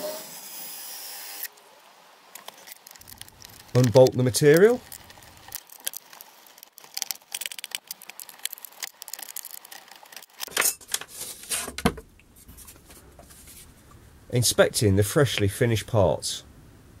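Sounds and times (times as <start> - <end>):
small metal clicks and rattles: 2.4 - 11.1.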